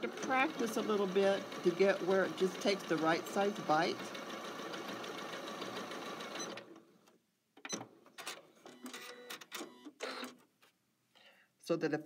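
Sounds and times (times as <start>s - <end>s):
sewing machine stitching: 0.0s - 6.8s.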